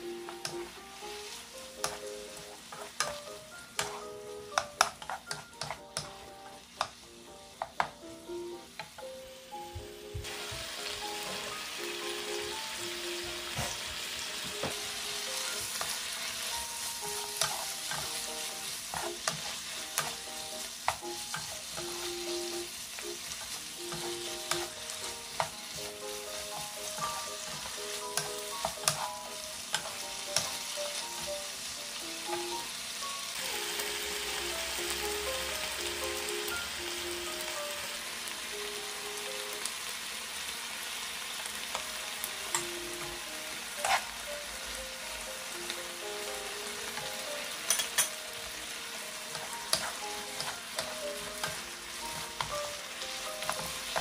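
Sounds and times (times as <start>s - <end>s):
food sizzling in a frying pan: 0.0s - 54.0s
spatula scraping a pan: 17.2s - 20.3s, 23.0s - 30.7s, 43.7s - 44.2s, 49.2s - 52.5s.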